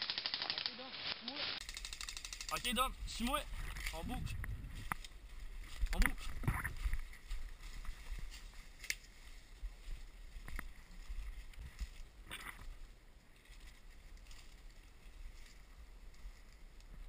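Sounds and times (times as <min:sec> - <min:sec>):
footsteps through leaves and brush: 0:00.0 - 0:01.6, 0:03.4 - 0:16.7
low microphone rumble: 0:02.6 - 0:08.3.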